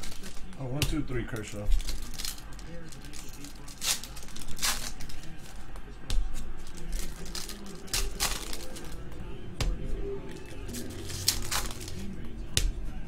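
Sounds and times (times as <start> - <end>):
foil pack tearing and crinkling: 0.0 - 0.7, 1.7 - 5.5, 6.6 - 9.0, 10.7 - 12.1.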